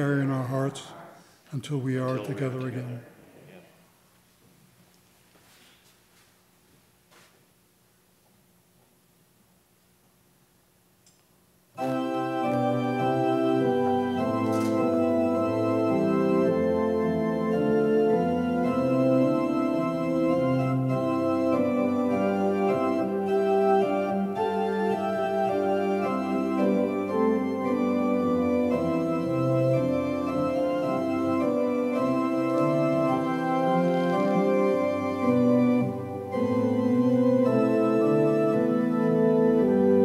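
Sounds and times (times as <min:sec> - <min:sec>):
organ playing slow chords: 0:00.0 - 0:03.0, 0:11.6 - 0:40.0.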